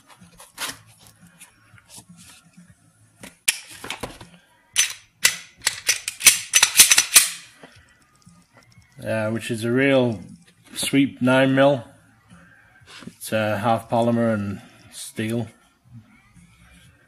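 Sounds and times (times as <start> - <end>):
pistol clicks and clacks: 4.8 - 7.5.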